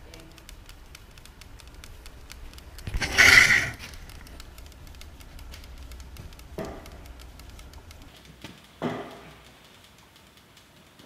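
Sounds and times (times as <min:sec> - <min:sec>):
liquid crackling with small pops: 0:00.0 - 0:11.0
hissing burst: 0:01.0 - 0:08.1.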